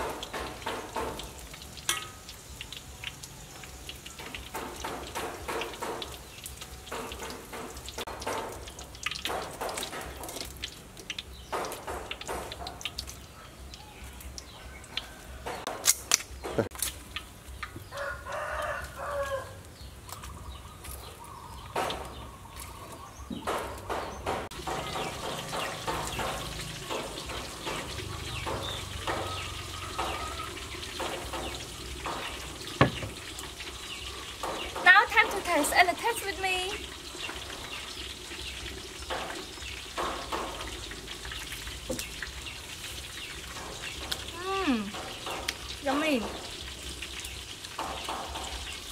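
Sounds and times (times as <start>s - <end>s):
utensils tapping a wok: 0.0s - 3.2s, 3.8s - 13.2s, 23.4s - 33.6s, 39.0s - 42.4s
rooster crowing: 17.9s - 19.7s.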